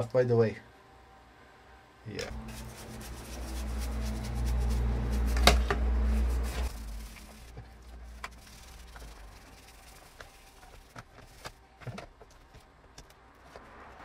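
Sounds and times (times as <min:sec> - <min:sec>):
low hum: 0:00.7 - 0:10.0
brush scrubbing plastic panel: 0:02.3 - 0:11.8
clicks of panel and brush: 0:02.3 - 0:13.6.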